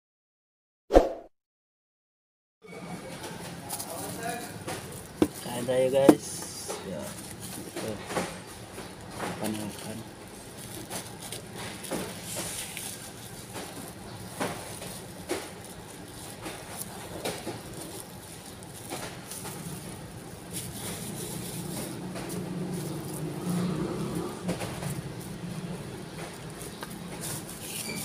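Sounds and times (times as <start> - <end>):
plastic bag crinkling: 3.6 - 28.0.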